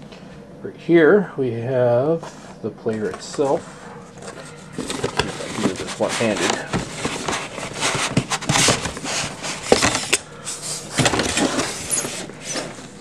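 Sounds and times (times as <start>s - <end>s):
plastic wrap crinkling: 4.2s - 10.2s.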